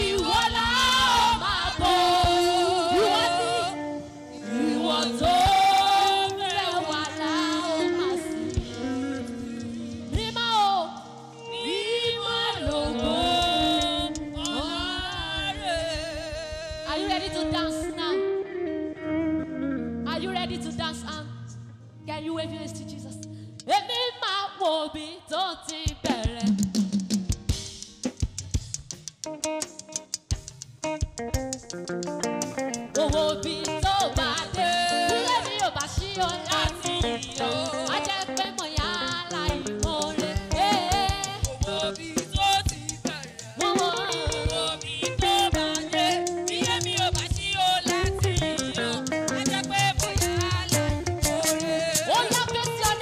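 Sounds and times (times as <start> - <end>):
fast low beat: 0.0 - 3.2, 12.6 - 17.9, 25.9 - 53.0
woman leading gospel singing: 0.0 - 8.9, 10.1 - 18.3, 20.1 - 21.4, 22.1 - 26.6, 32.9 - 53.0
female backing singers: 0.0 - 9.2, 10.1 - 18.0, 33.0 - 53.0.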